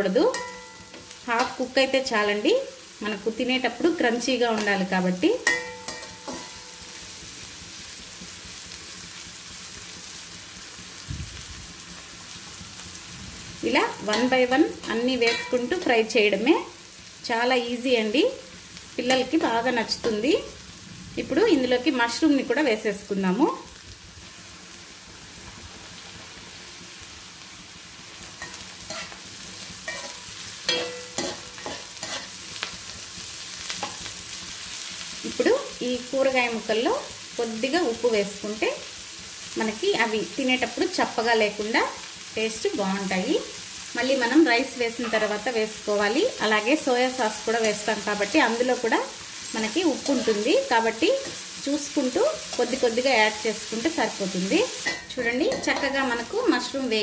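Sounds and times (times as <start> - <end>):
vegetables sizzling in hot oil: 0.0 - 57.0
metal spatula scraping wok: 0.1 - 2.0, 5.4 - 7.2, 13.8 - 16.0, 28.3 - 34.4, 44.2 - 45.6, 47.3 - 51.6, 54.4 - 56.4.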